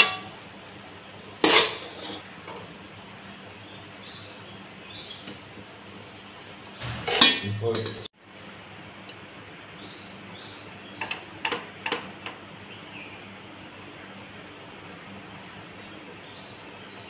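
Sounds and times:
metal ladle scraping pot: 1.4 - 2.6, 6.8 - 8.0
burst of noise: 6.8 - 7.4.

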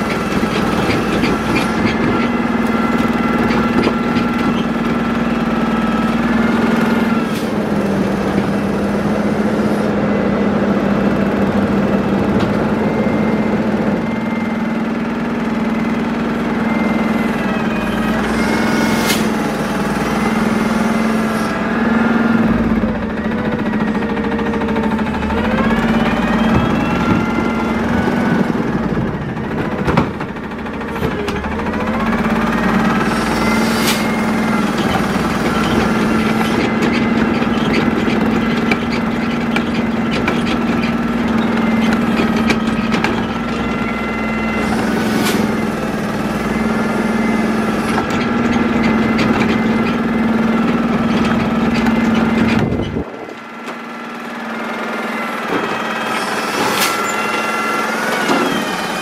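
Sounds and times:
garbage truck engine drone: 0.0 - 59.0
hydraulic whine: 0.0 - 59.0.

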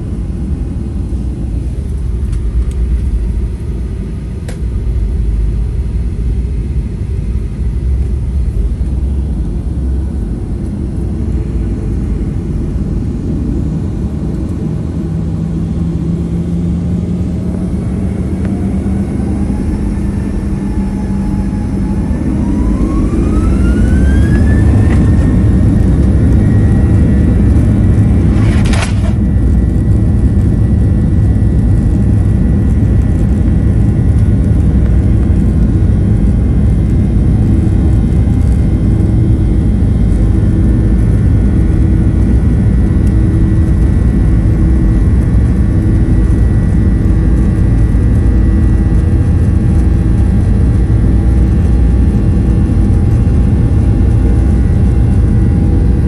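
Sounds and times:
jet engines spooling up: 0.0 - 32.7
low rumble of accelerating airliner: 0.0 - 56.0.

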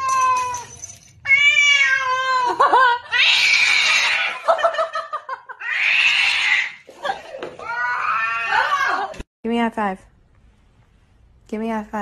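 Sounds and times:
cat meowing: 1.2 - 2.5, 7.6 - 9.0.

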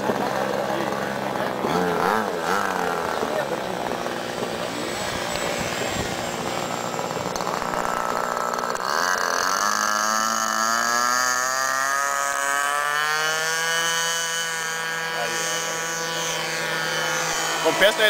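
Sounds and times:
model plane engine and propeller: 0.0 - 18.0.

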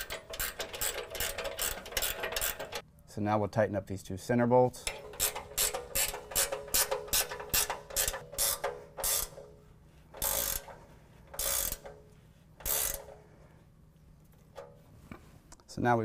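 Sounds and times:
ratchet wrench clicking: 0.0 - 2.8, 4.9 - 9.4, 10.2 - 12.0, 12.6 - 13.2.

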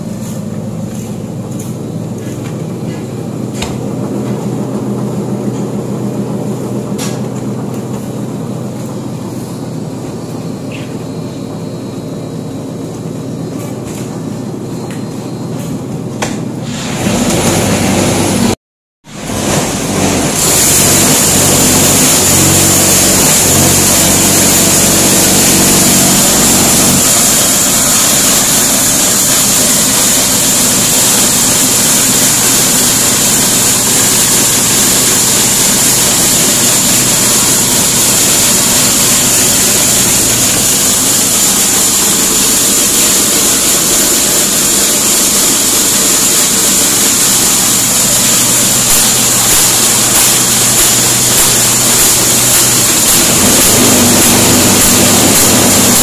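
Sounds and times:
machinery hissing: 16.5 - 56.0.

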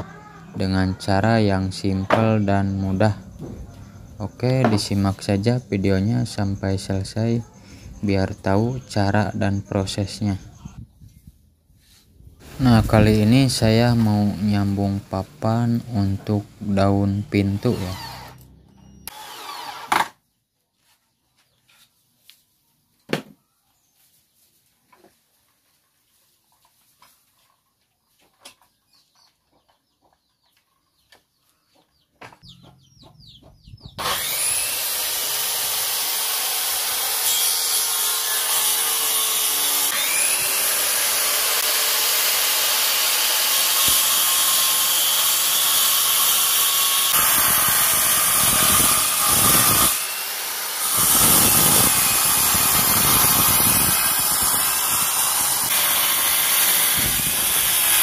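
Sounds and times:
circular saw cutting wood: 0.8 - 10.6, 12.4 - 20.1, 34.0 - 58.0.

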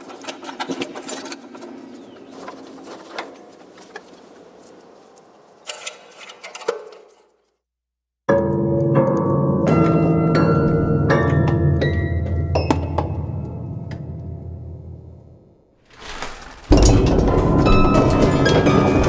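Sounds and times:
piano strings ringing: 16.7 - 19.0.

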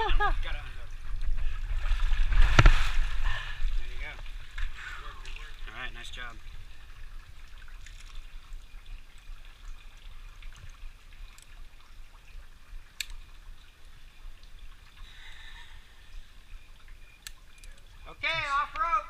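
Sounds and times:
water trickling over rock: 0.0 - 19.0
climbing gear clicks: 17.2 - 17.9.

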